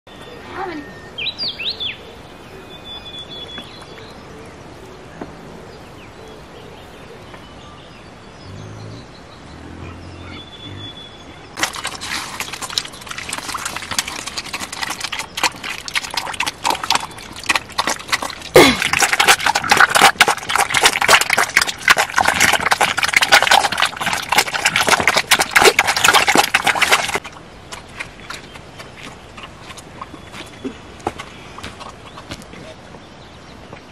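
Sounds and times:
bird chirps: 6.9s - 11.6s
piglets chomping and smacking: 11.6s - 32.5s.

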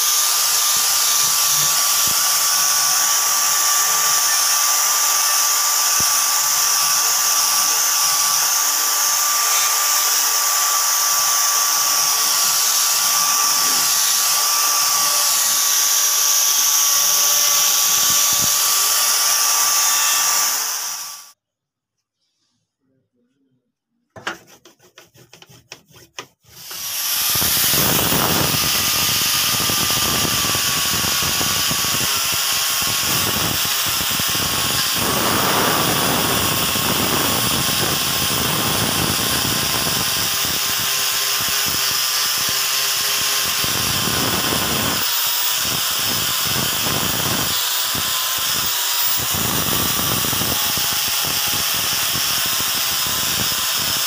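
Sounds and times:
angle grinder motor whine: 0.0s - 21.4s, 26.6s - 54.0s.

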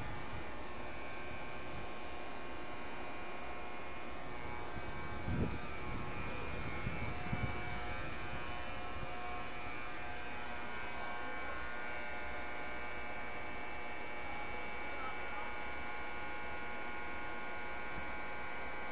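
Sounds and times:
electric locomotive humming: 0.0s - 18.9s.

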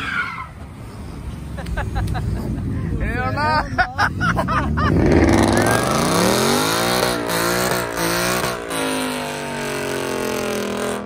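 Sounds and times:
tires spinning: 0.0s - 11.0s
car engine revving hard: 4.3s - 11.0s.

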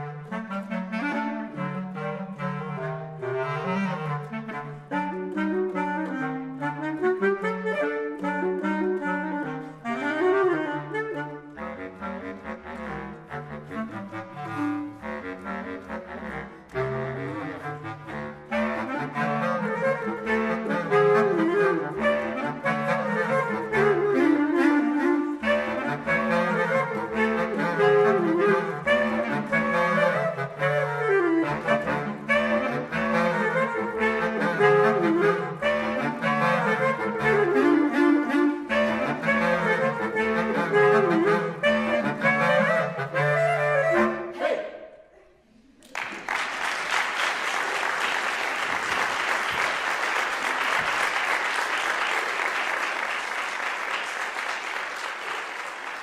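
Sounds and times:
bass clarinets playing klezmer tune: 0.0s - 44.9s, 46.6s - 56.0s
audience applause: 45.7s - 56.0s.

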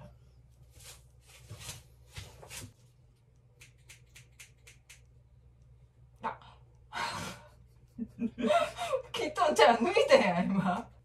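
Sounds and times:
scissors snipping hair: 3.6s - 5.1s.

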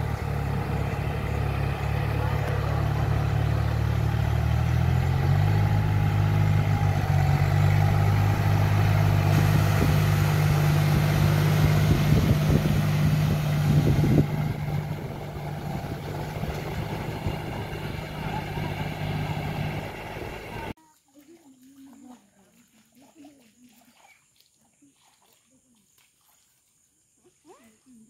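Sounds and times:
tractor diesel engine under load: 0.0s - 20.8s
knocks and splashes in water: 6.8s - 26.8s.

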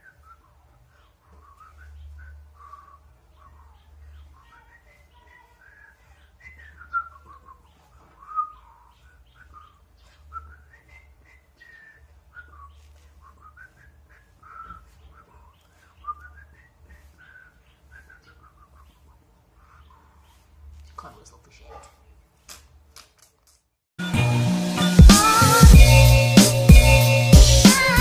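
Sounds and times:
woman whistling a tune: 5.6s - 7.6s, 8.2s - 8.6s.

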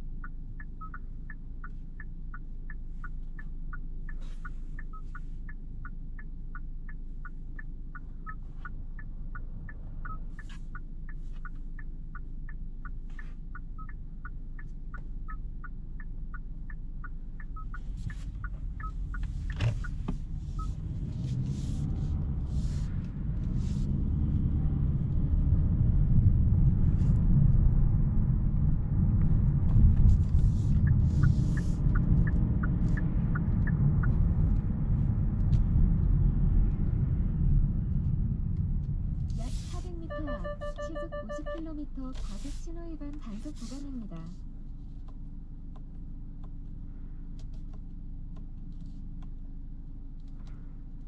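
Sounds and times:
car engine and road noise: 0.0s - 51.0s
turn signal ticking: 0.0s - 51.0s.

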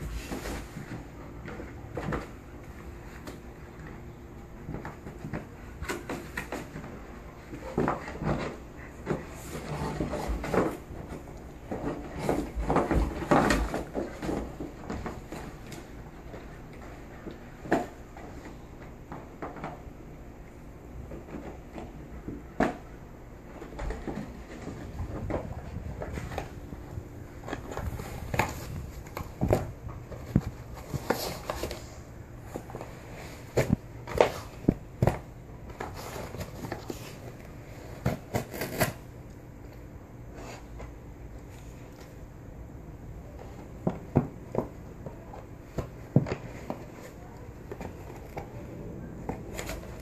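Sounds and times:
dog chewing and tearing cardboard: 35.8s - 39.2s
dog tearing cardboard: 37.9s - 39.1s.

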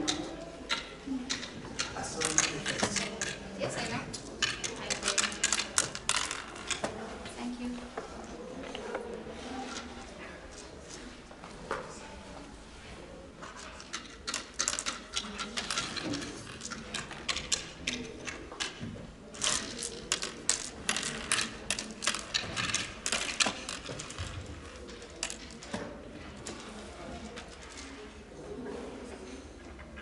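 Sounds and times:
seeds clicking on wooden board: 0.1s - 3.4s, 13.8s - 25.7s.

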